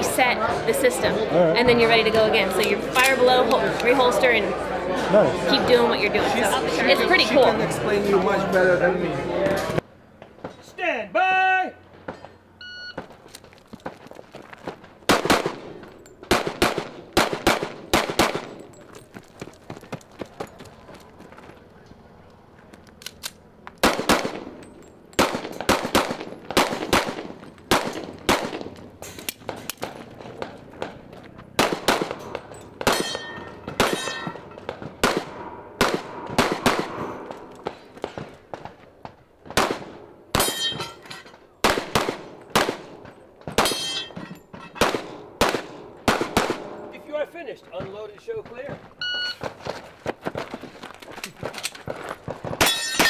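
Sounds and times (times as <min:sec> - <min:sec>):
pistol shots: 0:15.0 - 0:18.6, 0:23.8 - 0:24.6, 0:25.2 - 0:38.8, 0:39.4 - 0:40.8, 0:41.6 - 0:44.2, 0:44.8 - 0:47.0
steel targets clanging: 0:32.1 - 0:34.7, 0:40.4 - 0:41.4, 0:42.4 - 0:44.9, 0:52.6 - 0:53.0.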